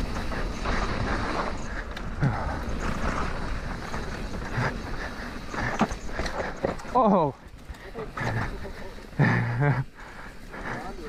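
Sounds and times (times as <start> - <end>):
bike tyres crunching over dirt: 0.0 - 11.0
wind rumble on camera: 0.0 - 11.0
bike knocks and rattles: 5.4 - 8.6.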